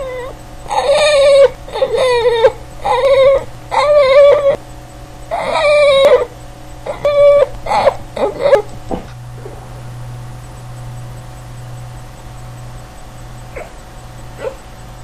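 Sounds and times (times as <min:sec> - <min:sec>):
dog whining: 0:00.0 - 0:04.6, 0:05.3 - 0:08.8, 0:13.5 - 0:13.8, 0:14.4 - 0:14.6.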